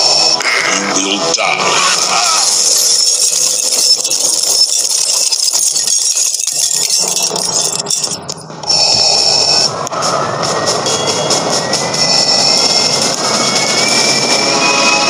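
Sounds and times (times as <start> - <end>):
glass shattering: 2.2 - 8.4
glass fragments clattering: 2.4 - 8.3.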